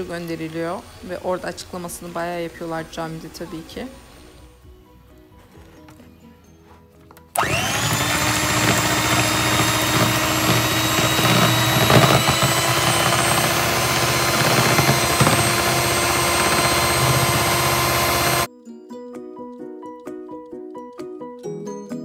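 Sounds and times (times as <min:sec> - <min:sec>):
electric hand mixer whining: 0:00.0 - 0:01.9, 0:07.3 - 0:18.5.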